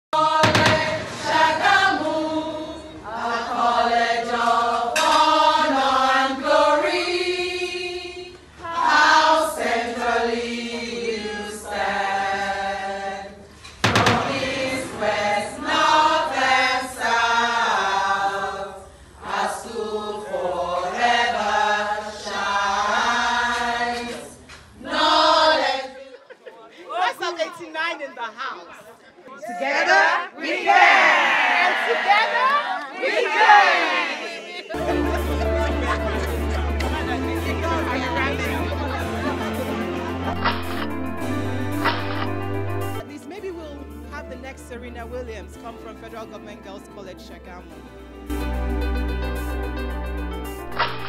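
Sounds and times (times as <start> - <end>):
choir singing: 0.2 - 26.2, 29.4 - 43.0, 50.7 - 51.0
sharp hit: 13.8 - 15.2.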